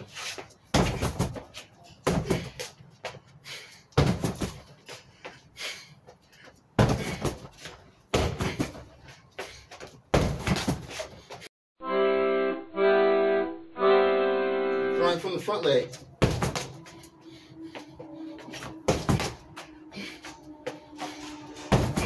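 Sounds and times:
hits on a punching bag: 0:21.7 - 0:22.0.

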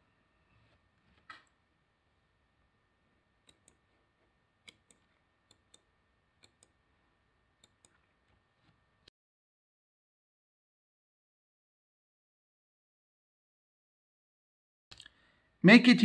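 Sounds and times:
computer mouse clicks: 0:03.4 - 0:04.0, 0:04.6 - 0:06.8, 0:07.6 - 0:08.8.

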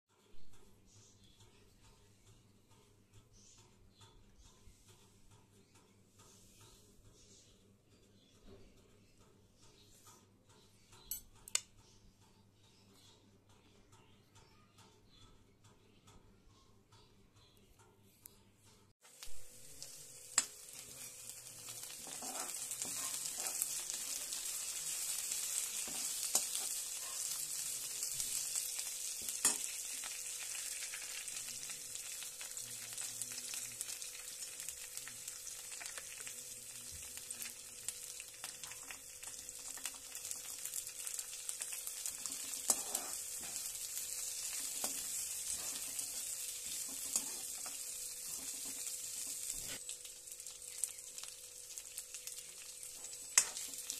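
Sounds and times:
food sizzling in hot oil: 0:19.1 - 0:53.9
steel spatula scraping pan: 0:21.9 - 0:23.9, 0:42.4 - 0:43.8.

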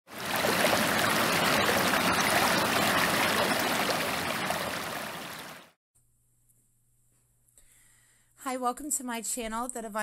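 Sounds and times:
stream flowing over rocks: 0:00.1 - 0:05.7.

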